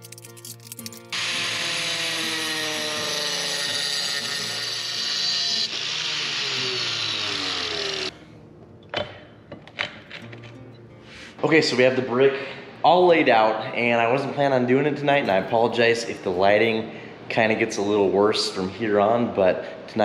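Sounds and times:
angle grinder cutting brick: 0:01.1 - 0:08.1.

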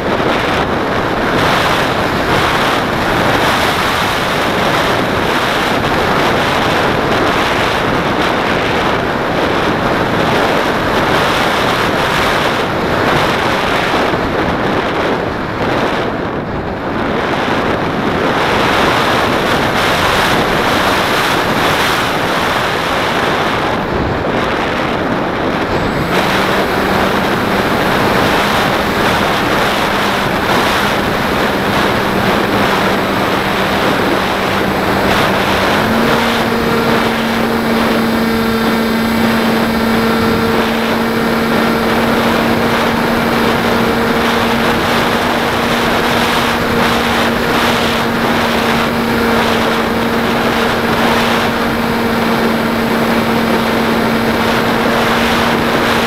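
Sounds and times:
motor and propeller humming: 0:00.0 - 0:56.0
wind rush over microphone: 0:00.0 - 0:56.0.

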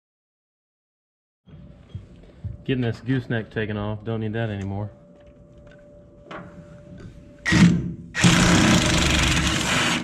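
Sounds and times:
cordless power wrench: 0:07.5 - 0:10.0.

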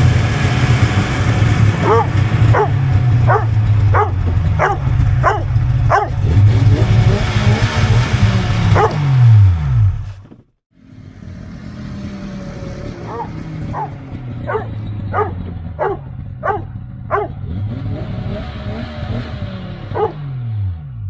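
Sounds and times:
snowmobile engine idling: 0:00.0 - 0:09.2, 0:11.9 - 0:17.5
dog barking: 0:01.8 - 0:06.4, 0:08.7 - 0:09.1, 0:13.0 - 0:17.4, 0:19.9 - 0:20.2.

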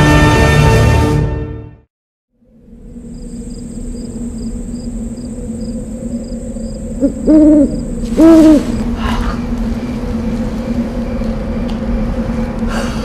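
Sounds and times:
low night ambience drone: 0:02.3 - 0:13.0
owl hooting: 0:03.3 - 0:09.6.

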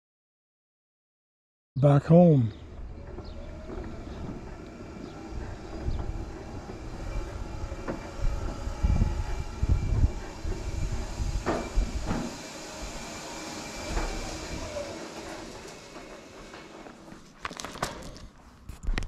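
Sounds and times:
heavy low rumbles: 0:02.5 - 0:15.6
power wheelchair rolling on concrete: 0:02.5 - 0:19.0
faint motor whine: 0:02.6 - 0:18.9.

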